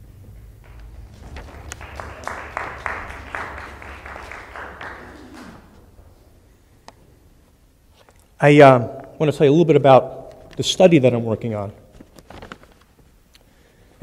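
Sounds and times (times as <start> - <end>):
audience applauding: 0.6 - 6.7.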